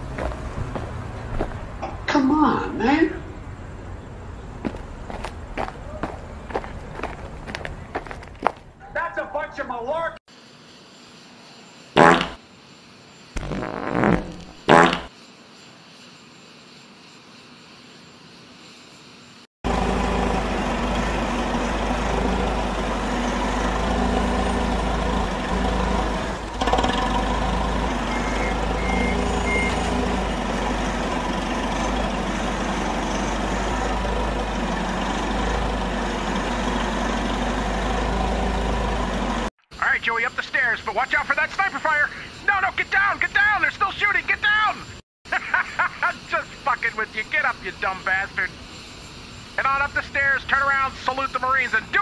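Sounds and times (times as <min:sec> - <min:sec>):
fart sound effect: 0:12.0 - 0:12.4, 0:13.4 - 0:15.1
loud mechanical drone: 0:19.7 - 0:39.5.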